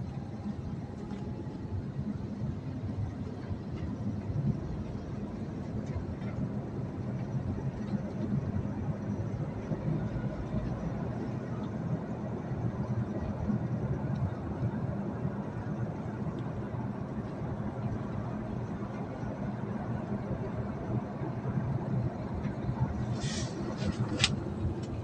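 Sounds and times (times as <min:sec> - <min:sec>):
vehicle road and engine noise: 0:00.0 - 0:25.0.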